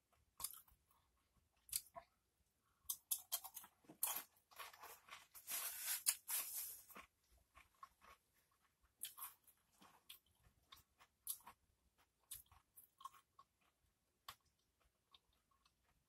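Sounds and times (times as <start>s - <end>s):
crunching tortilla chips: 3.0s - 8.2s.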